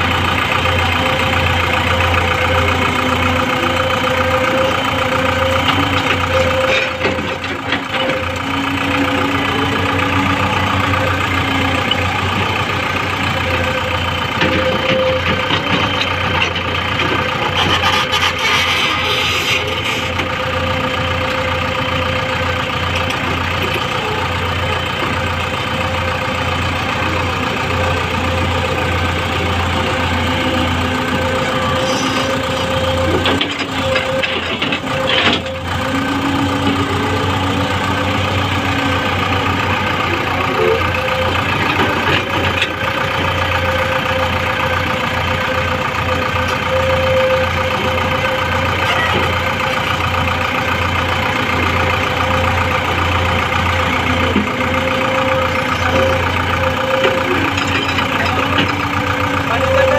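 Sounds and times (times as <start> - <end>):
excavator diesel engine running: 0.0 - 59.9
hydraulic whine: 29.0 - 42.0.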